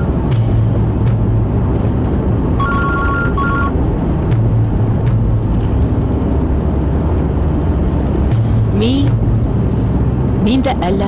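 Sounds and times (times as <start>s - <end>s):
car road noise: 0.0s - 11.0s
two-tone phone ringing: 2.6s - 3.8s.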